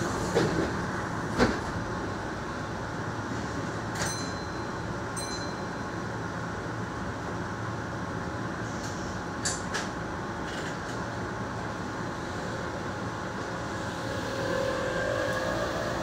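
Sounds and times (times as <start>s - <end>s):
electric train humming: 10.8s - 16.0s.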